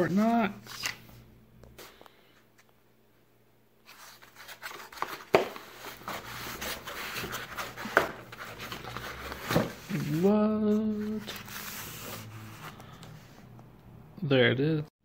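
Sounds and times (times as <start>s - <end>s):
packaging rustling and tearing: 3.9s - 10.2s.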